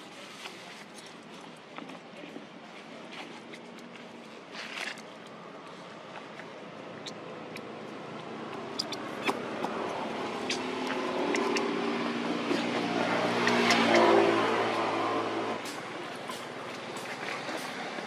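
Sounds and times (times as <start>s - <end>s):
vehicle engine passing: 7.3s - 18.0s.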